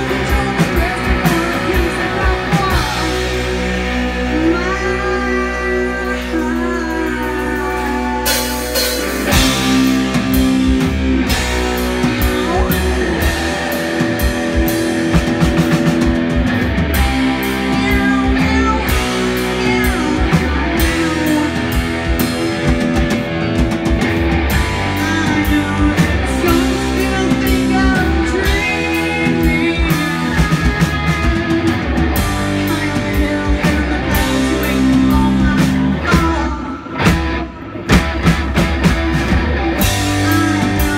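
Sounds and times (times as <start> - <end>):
woman singing: 0.0 - 9.8, 12.1 - 13.8, 17.0 - 22.2, 24.8 - 37.2, 39.8 - 40.9
live rock band playing: 0.0 - 40.9.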